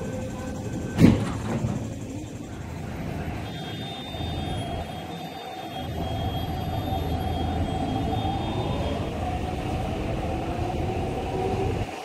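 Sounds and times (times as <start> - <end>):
electric train pulling out: 0.0 - 12.0
traction motors whining: 0.0 - 12.0.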